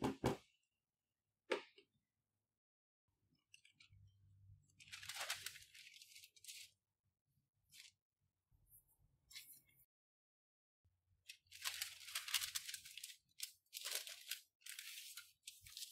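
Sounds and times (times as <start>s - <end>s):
baking paper rustling: 4.8s - 6.8s, 11.3s - 15.9s.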